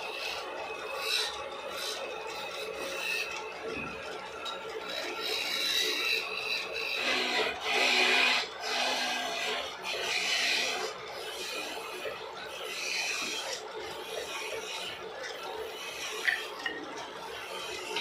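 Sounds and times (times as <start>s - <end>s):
chisel scraping wood: 4.9s - 10.9s.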